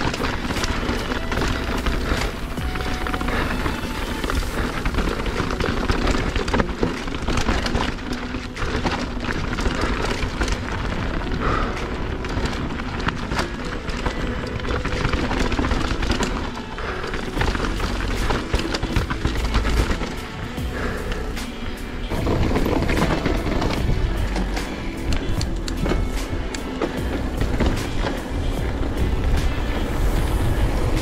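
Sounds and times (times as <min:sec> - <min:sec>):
bike clattering with sharp knocks: 0:00.0 - 0:30.4
tyres crunching over loose stones: 0:00.0 - 0:31.0
wind rumbling on microphone: 0:00.0 - 0:31.0.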